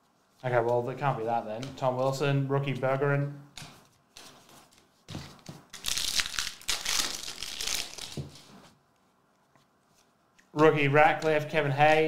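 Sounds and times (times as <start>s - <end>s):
wrapper tearing and crinkling: 5.7s - 8.5s.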